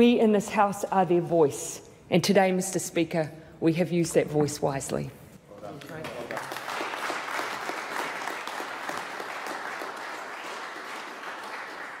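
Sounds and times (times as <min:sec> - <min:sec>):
crowd applauding: 0:06.0 - 0:12.0.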